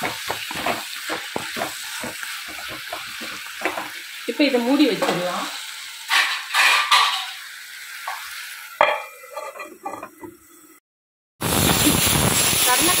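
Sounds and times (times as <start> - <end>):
curry sizzling in pan: 0.0 - 10.8, 11.4 - 13.0
metal lid and utensil clanks: 6.1 - 7.4, 8.8 - 10.4.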